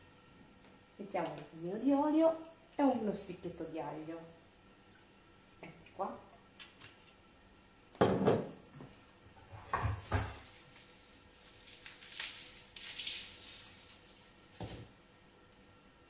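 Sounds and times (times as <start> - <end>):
bottle knocking on countertop: 8.0 - 8.6
scraping on wooden cutting board: 9.4 - 10.4.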